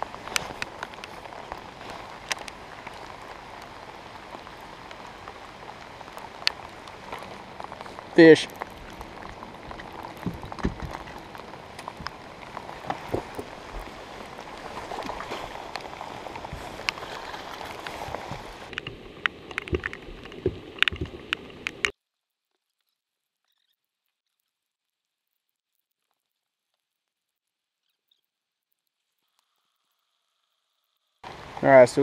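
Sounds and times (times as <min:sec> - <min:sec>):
rain falling on lake and boat: 0:00.0 - 0:21.9, 0:31.2 - 0:32.0.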